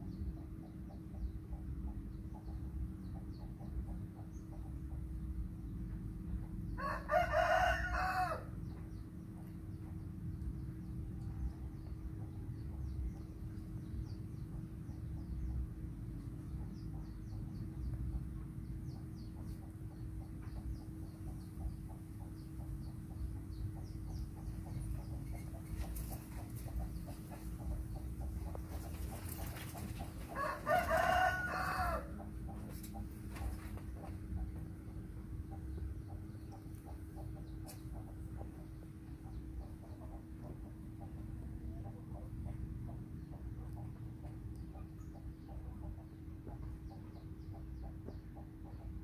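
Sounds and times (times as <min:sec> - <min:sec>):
steady low hum: 0:00.0 - 0:49.0
rooster crowing: 0:06.8 - 0:08.6, 0:30.4 - 0:32.2.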